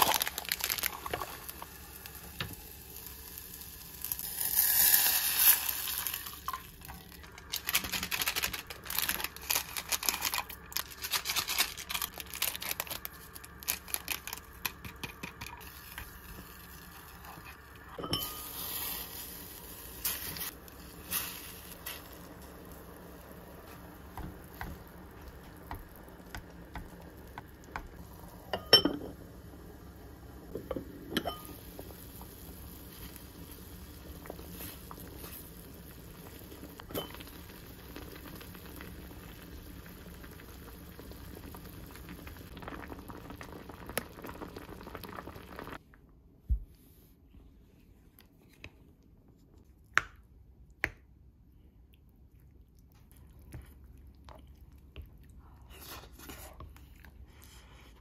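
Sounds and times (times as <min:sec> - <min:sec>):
stew bubbling in a pot: 0:12.1 - 0:45.8.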